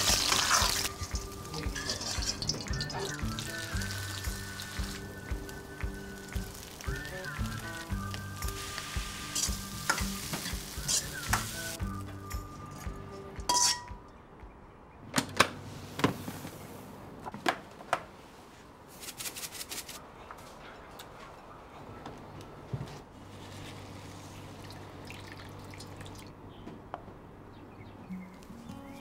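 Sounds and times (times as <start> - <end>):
utensils clinking against bowl: 0.0 - 4.8, 12.6 - 14.0
sugar sprinkling ticks: 0.0 - 11.8
rice sizzling in a wok: 0.0 - 12.0.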